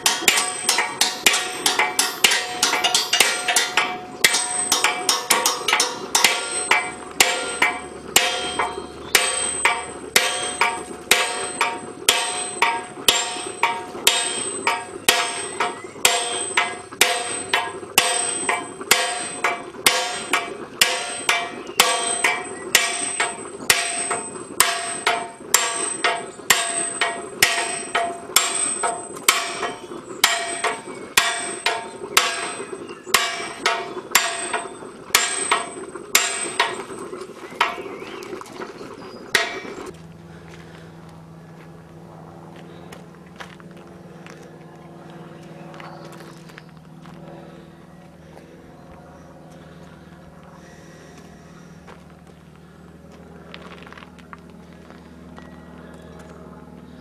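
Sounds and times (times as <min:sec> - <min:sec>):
sledgehammer striking metal: 0:00.0 - 0:38.0, 0:39.4 - 0:39.9.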